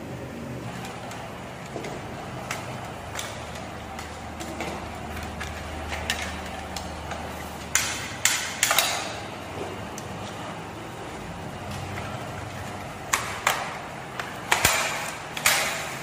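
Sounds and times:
sharp clacks of parts snapping: 0:13.1 - 0:16.0.

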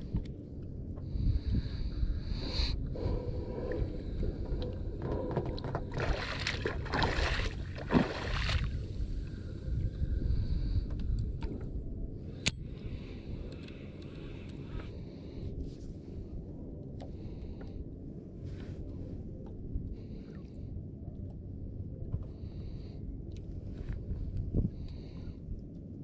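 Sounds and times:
wind noise: 0:00.0 - 0:16.4, 0:23.6 - 0:26.0
water noise: 0:03.4 - 0:09.1.

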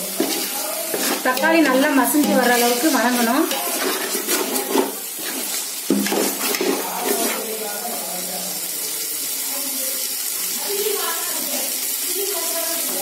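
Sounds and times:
metal spoon scraping a pot: 0:00.0 - 0:07.5
masala sizzling in oil: 0:00.0 - 0:13.0.

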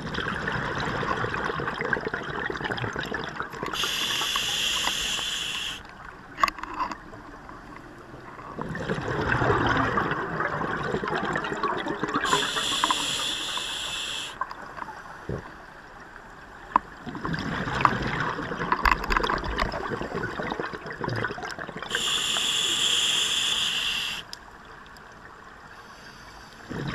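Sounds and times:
exhaled bubbles rumbling: 0:00.0 - 0:03.8, 0:08.2 - 0:12.7, 0:16.9 - 0:22.1, 0:26.7 - 0:26.9
regulator inhalation hiss: 0:03.8 - 0:05.8, 0:12.3 - 0:14.4, 0:21.9 - 0:24.3.

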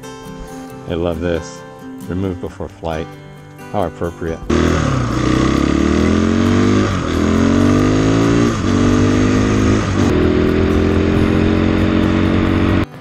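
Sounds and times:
motorcycle engine accelerating: 0:04.5 - 0:13.0.

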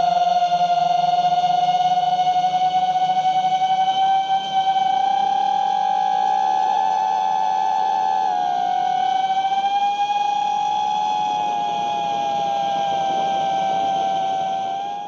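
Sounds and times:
quadcopter motors whining: 0:04.2 - 0:15.0.

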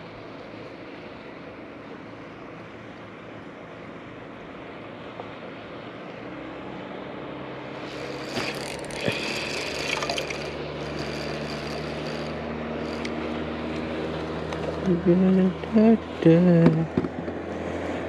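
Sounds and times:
electric motor humming: 0:07.7 - 0:17.1
water lapping: 0:07.8 - 0:10.7
fishing reel clicks and rattles: 0:07.8 - 0:13.2.

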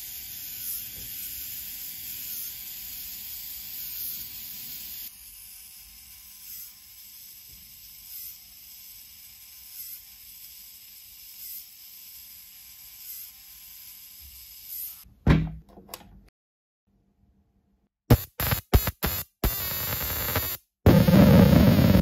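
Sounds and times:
small electric motor whirring: 0:00.0 - 0:15.1
loud thump: 0:15.2 - 0:15.6.

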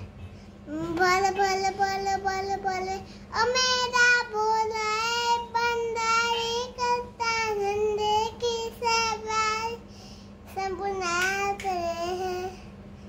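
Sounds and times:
boy singing unaccompanied: 0:00.7 - 0:09.8, 0:10.5 - 0:12.5
boy taking a breath: 0:09.8 - 0:10.4.

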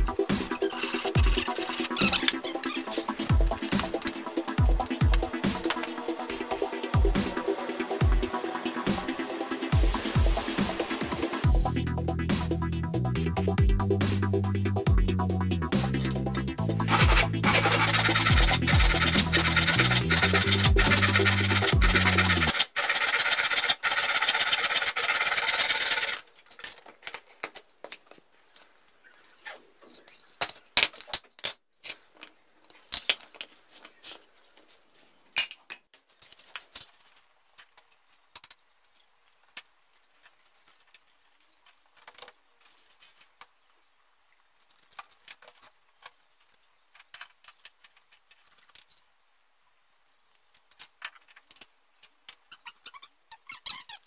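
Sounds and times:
hand saw cutting wood: 0:00.3 - 0:05.9, 0:16.8 - 0:26.3
wooden pieces and tools knocking: 0:00.6 - 0:06.0, 0:16.8 - 0:23.6.

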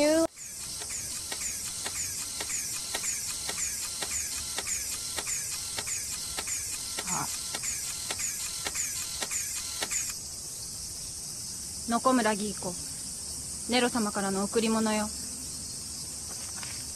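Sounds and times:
high falling servo whir: 0:00.4 - 0:10.2
mechanical clicks: 0:00.4 - 0:10.2.

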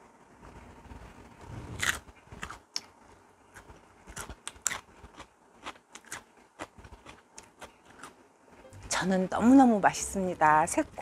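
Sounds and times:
person chewing crunchy cucumber: 0:01.7 - 0:02.9, 0:03.5 - 0:08.2.

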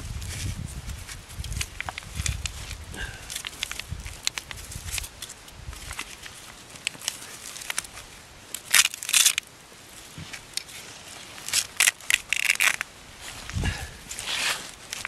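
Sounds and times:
strap scraping and rustling: 0:00.0 - 0:15.0
snow crunching underfoot: 0:09.8 - 0:15.0.

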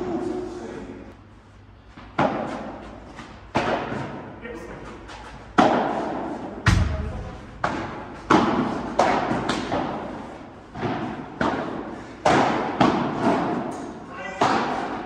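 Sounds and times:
padel ball hits echoing: 0:06.6 - 0:10.1.

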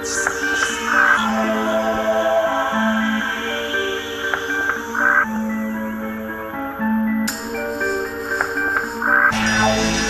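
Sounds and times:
electronic music: 0:00.0 - 0:10.0
deep bass layer: 0:09.3 - 0:10.0.

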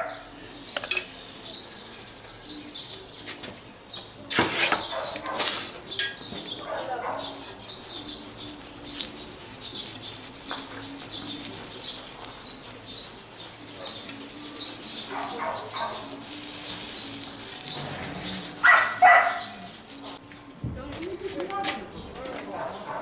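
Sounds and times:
wax sizzling on hot iron: 0:06.9 - 0:12.8, 0:14.4 - 0:20.2.

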